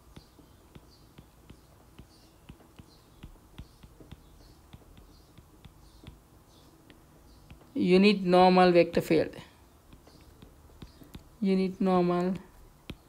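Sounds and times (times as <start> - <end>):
stylus tapping on glass screen: 0.0 - 7.8, 9.9 - 11.4.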